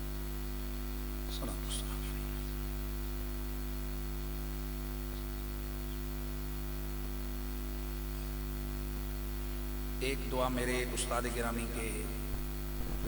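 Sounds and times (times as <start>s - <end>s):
electrical mains hum: 0.0s - 13.0s
sound system hiss: 10.0s - 13.0s.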